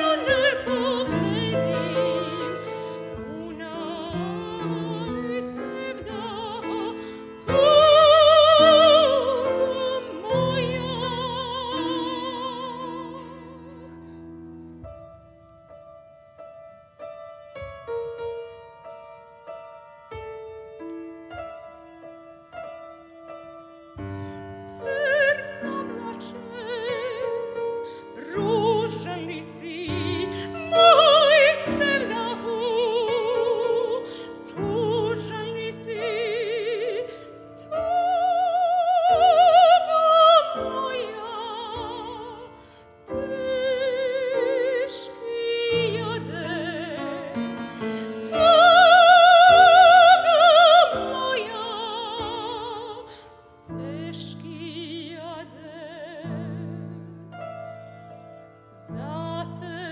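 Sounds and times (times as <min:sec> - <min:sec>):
classical singer with vibrato: 0:00.0 - 0:59.9
piano accompaniment: 0:00.0 - 0:59.9.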